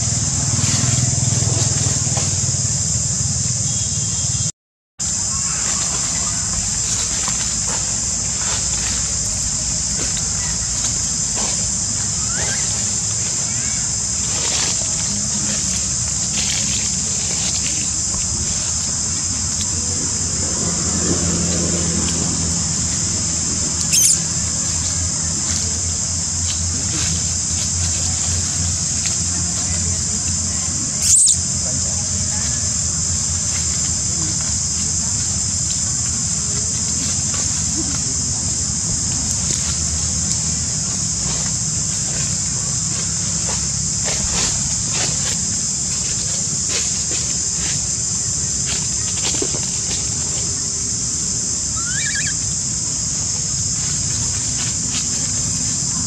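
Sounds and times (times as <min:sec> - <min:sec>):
steady low rumble: 0:00.0 - 0:04.2, 0:05.0 - 0:51.8
constant high hiss: 0:00.0 - 0:56.0
high insect drone: 0:00.0 - 0:56.0
faint rustles: 0:05.1 - 0:56.0
brief high squeak: 0:51.8 - 0:52.4.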